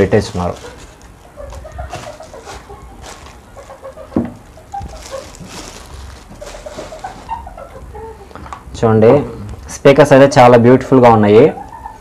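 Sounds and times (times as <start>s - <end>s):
plastic bag rustling: 0.0s - 8.7s.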